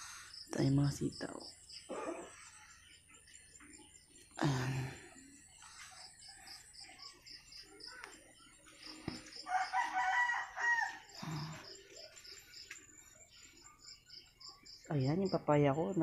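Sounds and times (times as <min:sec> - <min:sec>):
rooster crowing: 0:09.4 - 0:11.6.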